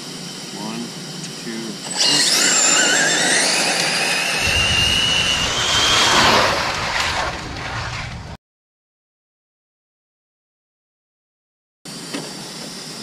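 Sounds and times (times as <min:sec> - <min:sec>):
high-pitched electric motor whine: 0:00.0 - 0:06.9
tyre noise on asphalt: 0:03.8 - 0:08.4.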